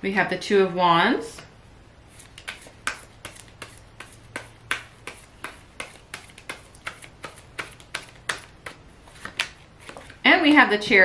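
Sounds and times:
cards being shuffled: 2.1s - 10.2s.

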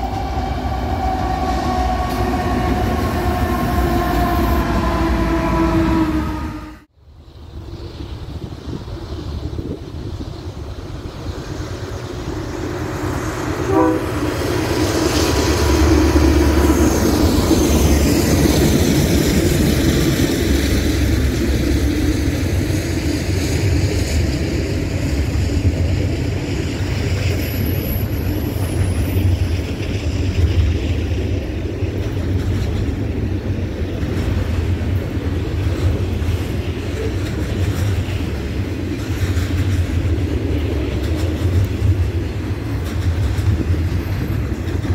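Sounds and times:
train horn: 0.0s - 6.9s, 13.6s - 14.4s
locomotive engine rumble: 0.0s - 44.9s
freight cars rolling and clattering: 14.5s - 44.9s.

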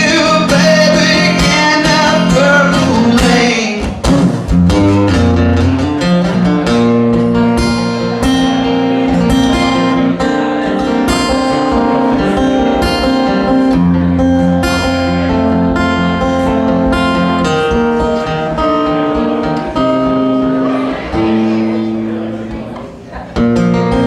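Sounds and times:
acoustic guitar strumming chords: 0.0s - 24.0s.

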